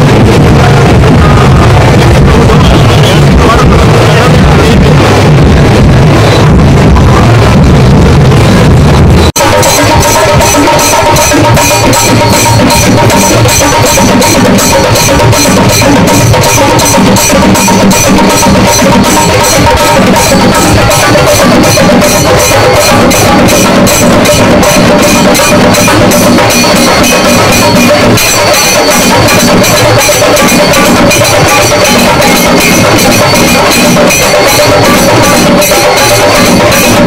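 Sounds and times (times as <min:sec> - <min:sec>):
fast drumbeat: 0:00.0 - 0:37.0
held pitched notes: 0:09.4 - 0:37.0.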